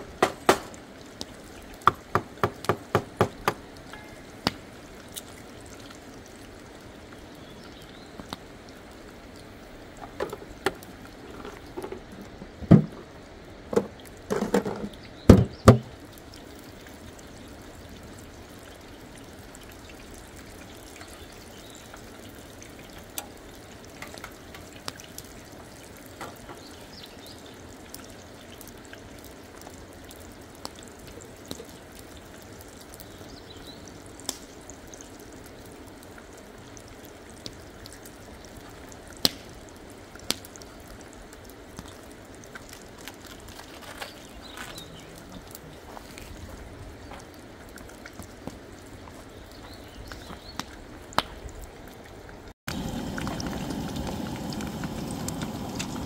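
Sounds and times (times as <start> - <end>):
flowing river water: 0.0 - 56.0
knocks and clatters: 13.7 - 15.9.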